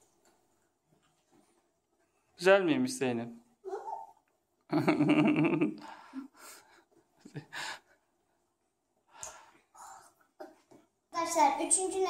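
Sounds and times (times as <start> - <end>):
children gasping and breathing: 9.2 - 10.7.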